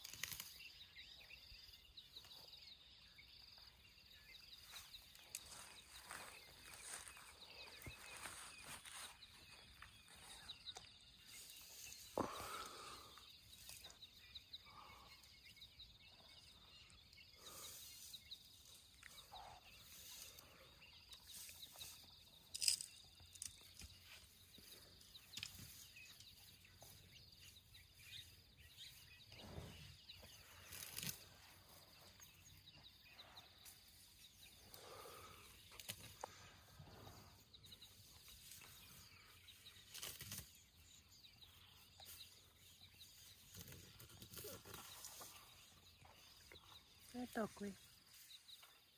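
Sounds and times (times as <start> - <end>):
elephant tearing and chewing grass: 0.0 - 0.6, 30.4 - 31.4, 39.8 - 40.6, 43.4 - 45.5.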